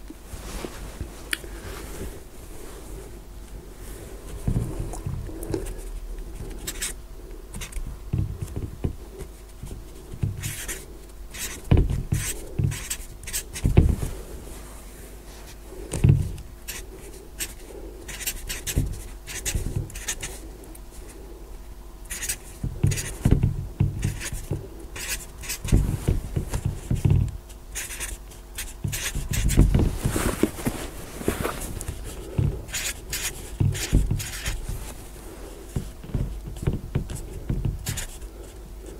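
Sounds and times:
marker scratching on board: 6.4s - 13.9s, 16.7s - 20.4s, 22.1s - 30.4s, 31.8s - 34.8s, 35.7s - 38.2s.

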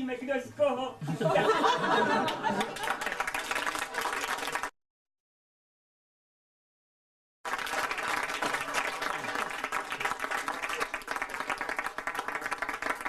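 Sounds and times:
audience applause: 2.2s - 4.7s, 7.5s - 13.0s.

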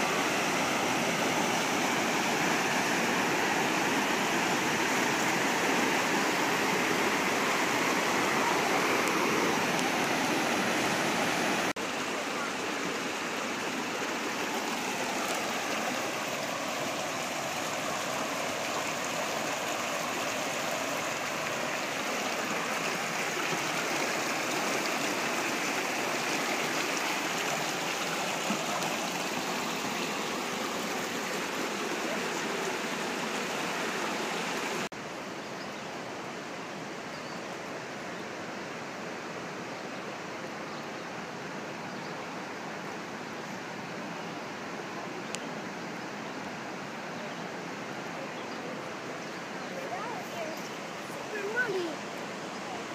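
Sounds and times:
river rapids rushing: 0.0s - 34.9s, 46.0s - 52.9s.

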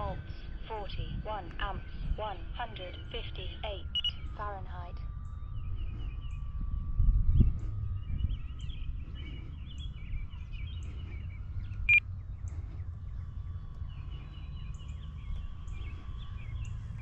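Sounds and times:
faint steady whine: 0.0s - 17.0s
low wind rumble: 0.0s - 17.0s
small birds chirping: 5.0s - 17.0s.

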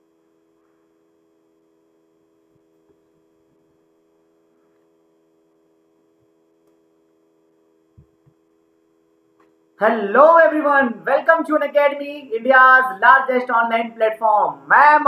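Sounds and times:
faint hum of thin tones: 0.0s - 15.0s.

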